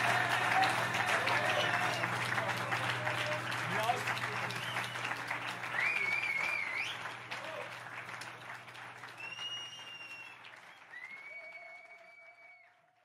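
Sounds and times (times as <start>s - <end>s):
audience applauding: 0.0s - 13.0s
high drawn-out whistles: 4.6s - 7.2s, 9.2s - 12.4s.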